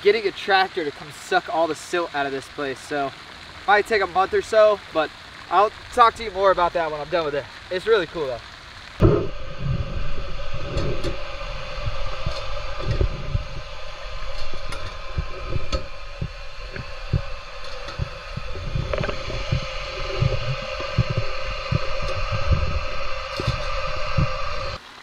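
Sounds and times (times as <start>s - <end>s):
faint steady hum: 0.1s - 24.8s
muffled underwater thumps and knocks: 9.0s - 24.8s.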